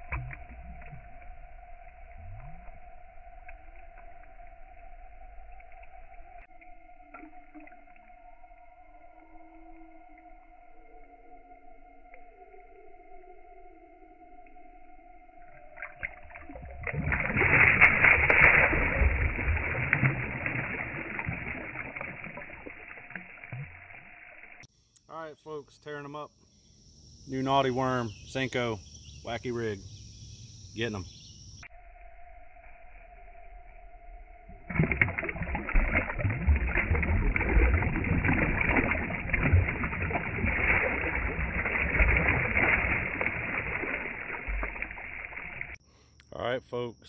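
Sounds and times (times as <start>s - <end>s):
fish splashing in water: 15.6s - 24.5s, 34.5s - 45.8s.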